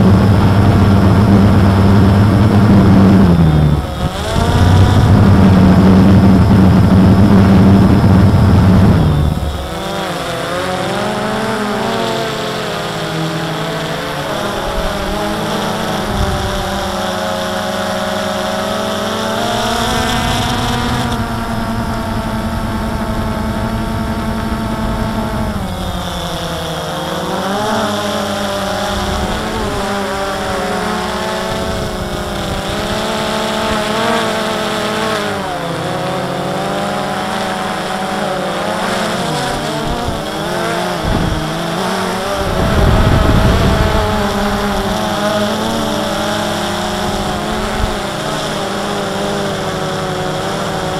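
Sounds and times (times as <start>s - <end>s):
wind rumble on microphone: 0.0s - 10.4s, 14.2s - 17.5s, 28.0s - 35.4s, 39.2s - 50.9s
quadcopter propellers whirring: 0.0s - 50.9s.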